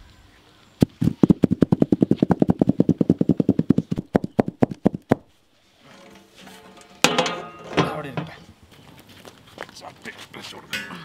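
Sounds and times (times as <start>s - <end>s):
metal basin knocking on ground: 7.0s - 8.4s.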